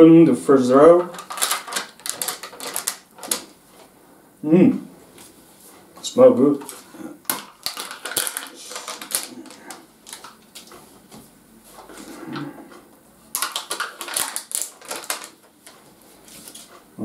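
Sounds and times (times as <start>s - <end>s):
foil lid crackling: 0.9s - 3.5s, 6.7s - 10.7s, 13.3s - 15.7s.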